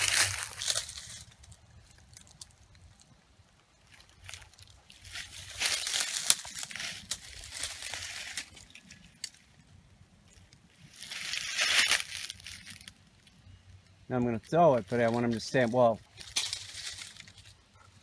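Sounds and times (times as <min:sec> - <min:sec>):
dry leaves and brush rustling: 0:00.0 - 0:18.0.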